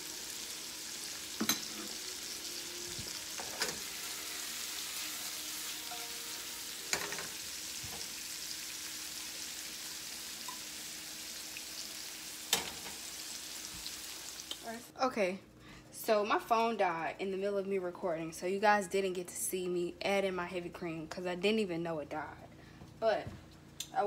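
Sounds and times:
food sizzling in skillets: 0:00.0 - 0:14.8.

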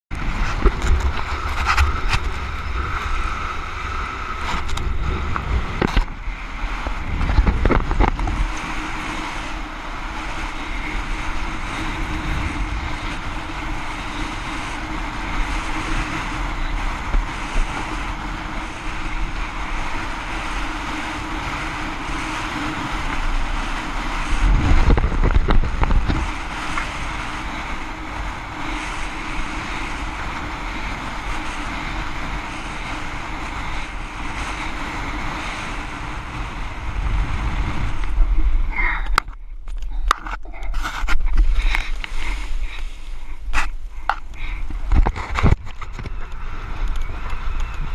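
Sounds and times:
rush of air and water: 0:00.1 - 0:47.9
wind buffeting microphone: 0:00.1 - 0:47.9.

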